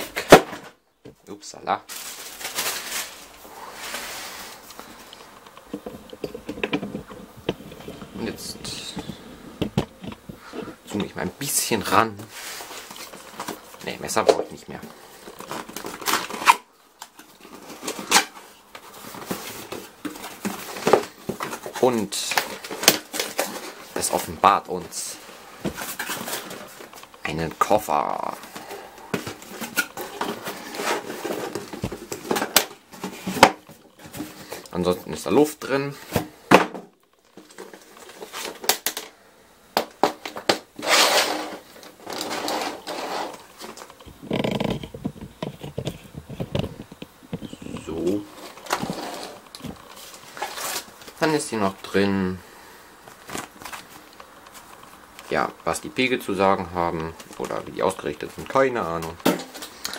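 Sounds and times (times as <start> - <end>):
case scraping on wooden floor: 3.7 - 11.2, 40.8 - 47.0, 48.3 - 50.9
case knocking and clicking: 9.6 - 10.4.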